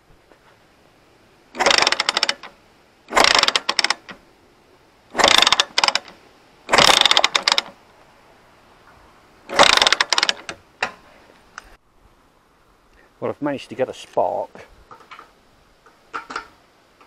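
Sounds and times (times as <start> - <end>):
engine cranking without starting: 1.5 - 4.2, 5.1 - 7.8, 9.5 - 10.6.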